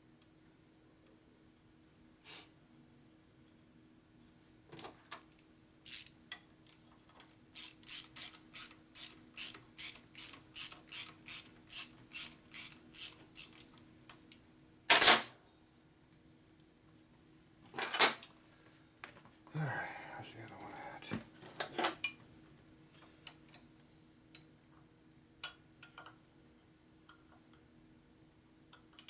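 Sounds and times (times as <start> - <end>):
ratchet wrench clicking: 5.9 - 6.8, 7.6 - 13.8.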